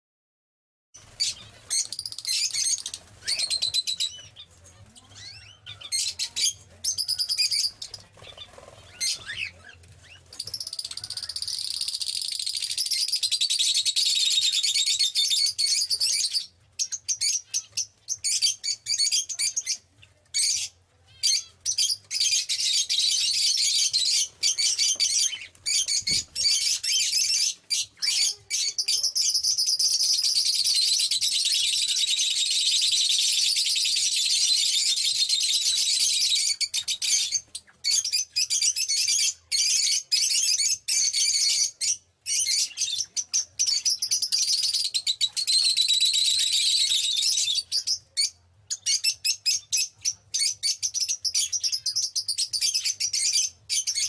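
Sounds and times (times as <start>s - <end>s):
birds chirping: 1.0s - 54.0s
high chirping chorus: 1.0s - 54.0s.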